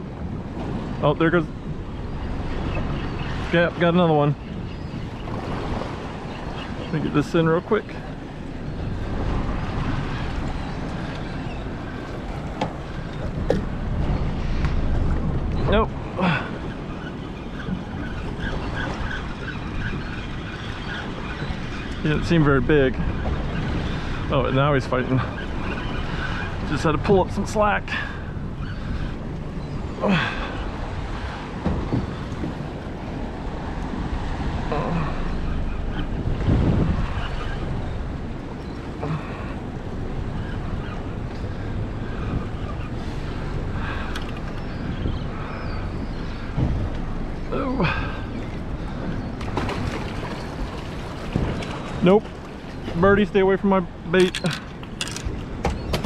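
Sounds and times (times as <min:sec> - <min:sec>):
choppy water: 0:00.0 - 0:56.0
wind buffeting microphone: 0:00.0 - 0:56.0.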